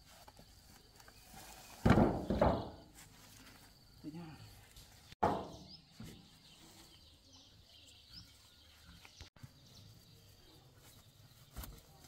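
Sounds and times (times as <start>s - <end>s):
faint outdoor background noise: 0.0s - 12.0s.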